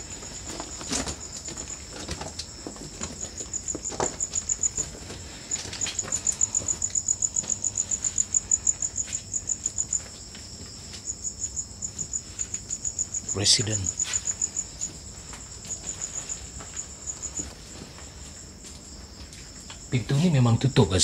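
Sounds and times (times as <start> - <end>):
faint footsteps: 0.0 - 20.3
insect chirping in pulses: 0.0 - 21.0.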